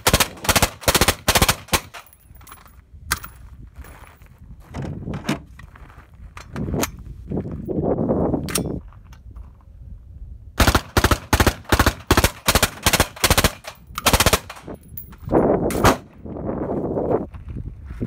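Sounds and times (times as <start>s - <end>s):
suppressed rifle firing bursts: 0.0s - 2.0s, 10.6s - 14.7s.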